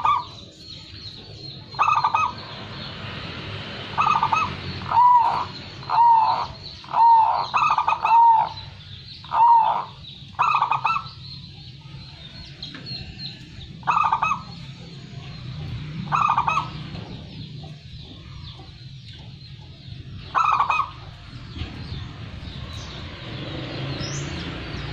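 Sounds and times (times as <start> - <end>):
dove cooing: 0.0 - 0.4, 1.7 - 2.4, 4.0 - 11.2, 13.8 - 14.7, 16.0 - 17.4, 20.2 - 21.2.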